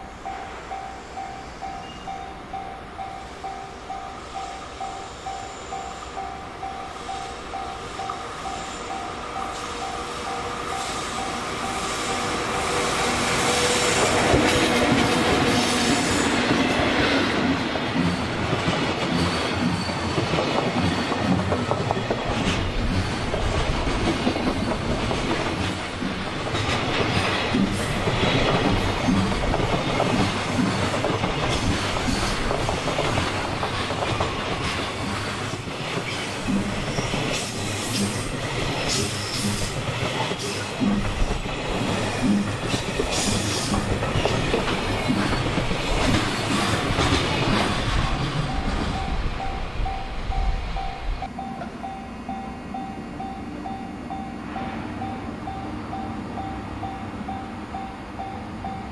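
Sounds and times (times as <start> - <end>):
train wheels clattering over rail joints: 13.9 - 49.4.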